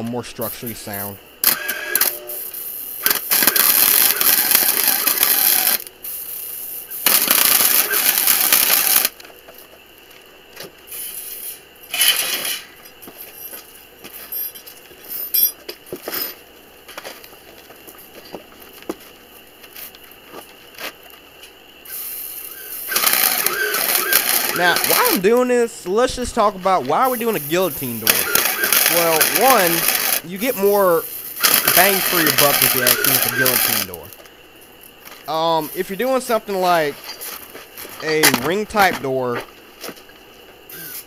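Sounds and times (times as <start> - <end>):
welder arc crackling: 1.9 - 5.9, 6.9 - 9.2, 21.9 - 25.4, 26.9 - 34.2.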